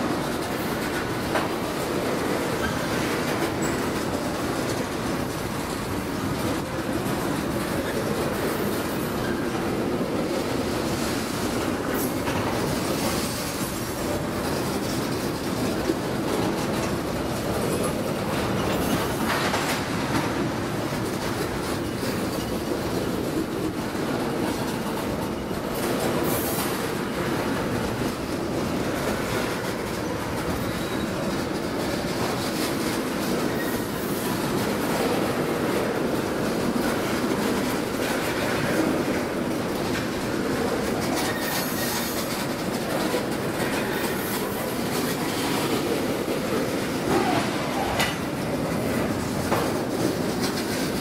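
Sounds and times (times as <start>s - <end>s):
train rumbling past: 0.0s - 51.0s
wheels clacking over rail joints: 0.0s - 51.0s
wheel squeal: 30.6s - 31.1s.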